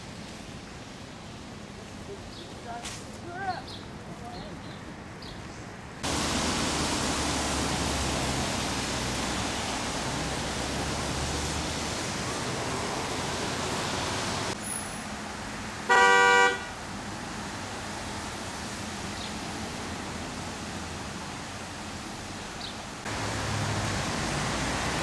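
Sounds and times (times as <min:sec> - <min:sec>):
street noise on wet road: 0:00.0 - 0:25.0
car horn honk: 0:15.9 - 0:16.8.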